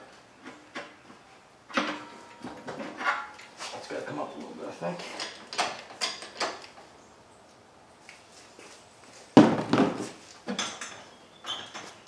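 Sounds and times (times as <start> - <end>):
metal clanks and rattles: 5.0 - 6.7.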